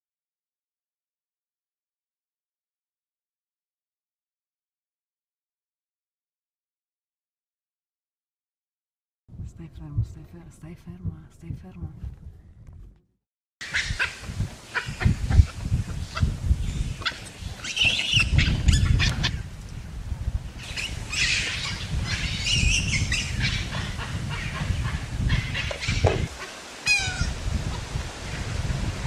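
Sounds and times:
wind buffeting microphone: 0:09.3 - 0:13.0, 0:13.6 - 0:29.0
animal squeals and chirps: 0:13.6 - 0:15.5, 0:17.0 - 0:19.4, 0:20.6 - 0:27.4
falling animal call: 0:25.3 - 0:27.8.

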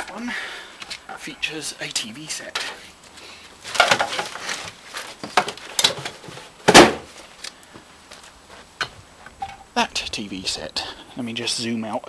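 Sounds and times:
handling knocks and clatters: 0:03.7 - 0:07.3
loud thump: 0:06.7 - 0:07.1.

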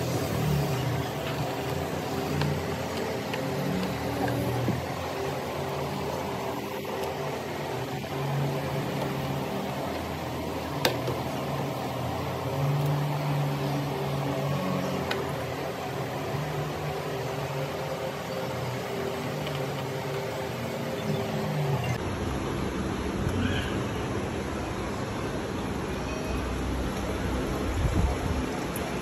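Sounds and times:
steady mechanical hum: 0:00.0 - 0:29.0.

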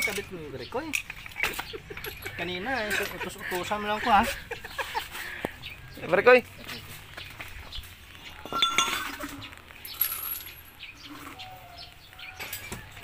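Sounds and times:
light metallic clinks: 0:00.0 - 0:03.4, 0:08.3 - 0:10.7
handling noise: 0:06.6 - 0:10.8.

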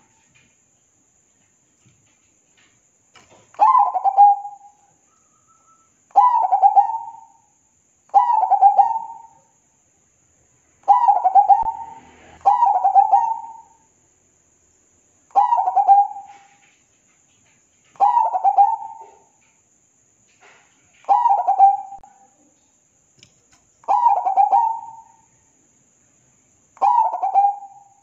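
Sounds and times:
dove cooing: 0:03.6 - 0:04.6, 0:06.2 - 0:07.3, 0:08.2 - 0:09.3, 0:10.9 - 0:13.8, 0:15.4 - 0:16.6, 0:18.0 - 0:19.4, 0:21.1 - 0:22.1, 0:23.9 - 0:25.2, 0:26.8 - 0:27.9.

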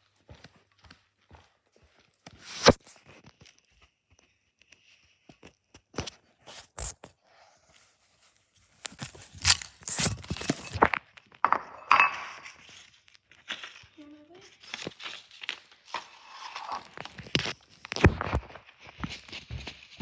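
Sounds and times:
corn crackers crackling in a bowl: 0:12.4 - 0:18.6.

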